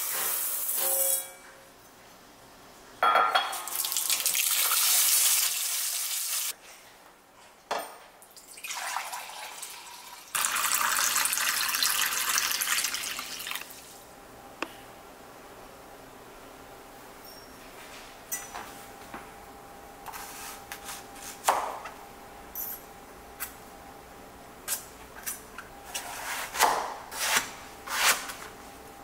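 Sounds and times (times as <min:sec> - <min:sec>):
water poured into jug: 0:08.4 - 0:13.8.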